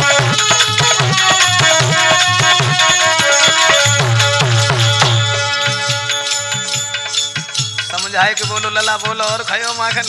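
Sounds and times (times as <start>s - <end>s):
percussion strokes: 0.0s - 10.0s.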